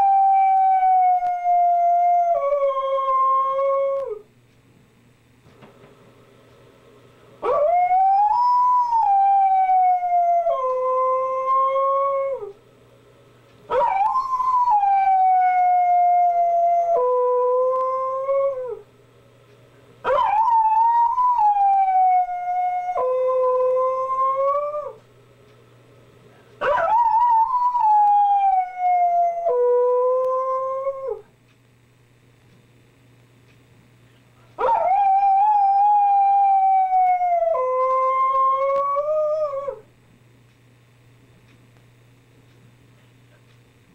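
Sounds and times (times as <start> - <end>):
dog howling: 7.4 - 12.5, 13.7 - 18.8, 20.1 - 25.0, 26.6 - 31.2, 34.6 - 39.9.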